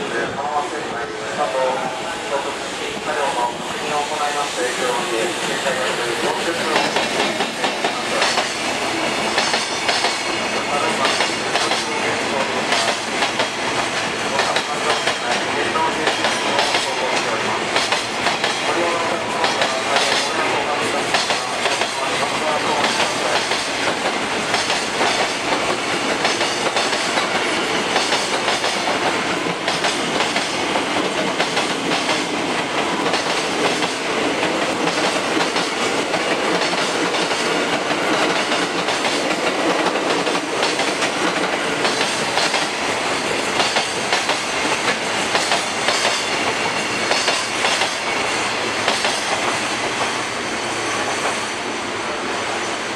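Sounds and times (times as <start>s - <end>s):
train wheels rumbling on rails: 0.0s - 52.9s
wheels clacking over rail joints: 21.1s - 50.2s.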